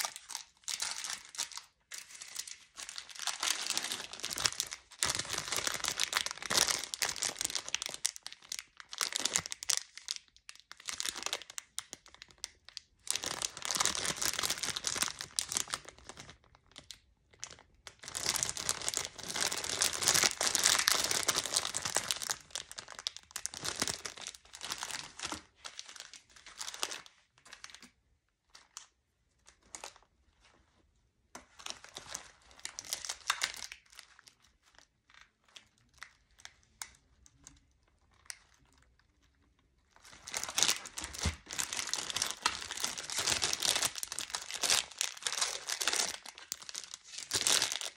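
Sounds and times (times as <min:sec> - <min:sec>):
plastic wrappers crinkling: 0:00.0 - 0:27.9, 0:28.5 - 0:30.6, 0:31.4 - 0:47.9.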